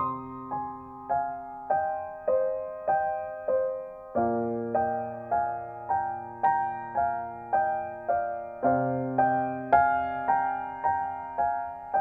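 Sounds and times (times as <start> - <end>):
piano notes ringing: 0.0 - 12.0.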